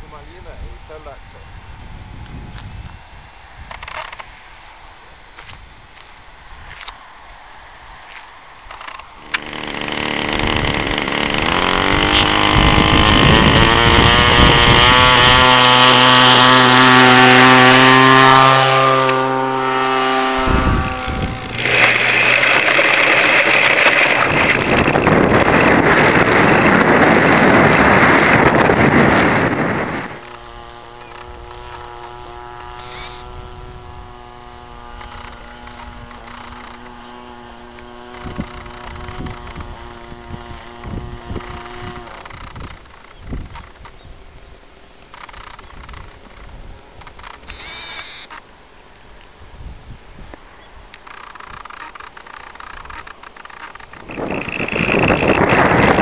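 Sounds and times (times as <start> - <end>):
rush of wind: 0.0 - 17.8, 18.9 - 30.4, 37.8 - 47.9, 48.9 - 56.0
distant plane drone overhead: 6.9 - 43.1
model plane engine: 8.1 - 44.0, 45.1 - 48.4, 50.9 - 56.0.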